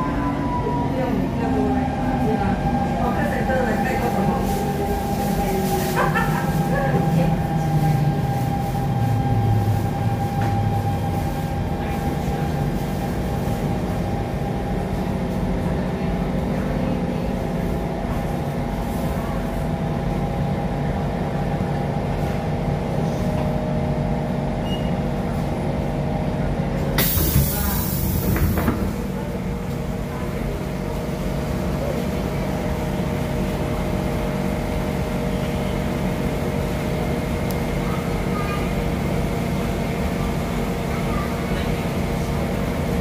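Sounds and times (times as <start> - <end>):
train running hum: 0.0 - 43.0
hiss of air from doors: 27.0 - 28.5.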